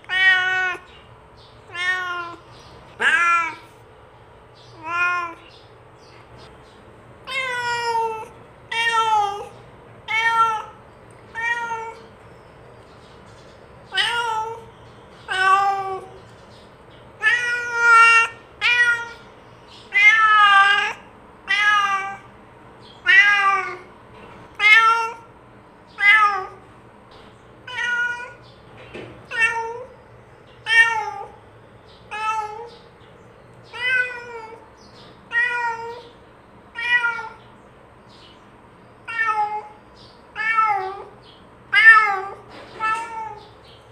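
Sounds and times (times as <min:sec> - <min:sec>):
cat meowing: 0:00.0 - 0:00.9, 0:01.7 - 0:03.8, 0:04.7 - 0:05.5, 0:07.2 - 0:12.1, 0:13.9 - 0:16.2, 0:17.2 - 0:19.3, 0:19.9 - 0:22.3, 0:23.0 - 0:23.9, 0:24.5 - 0:25.3, 0:25.9 - 0:26.6, 0:27.6 - 0:28.4, 0:29.2 - 0:29.9, 0:30.6 - 0:31.4, 0:32.1 - 0:32.8, 0:33.7 - 0:34.6, 0:35.3 - 0:37.5, 0:39.0 - 0:43.6.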